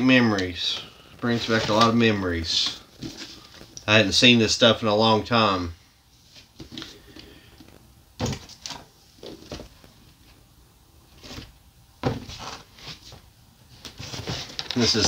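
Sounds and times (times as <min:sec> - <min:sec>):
cardboard boxes knocking and rustling: 0:08.2 - 0:09.8, 0:11.2 - 0:13.2, 0:13.8 - 0:15.0.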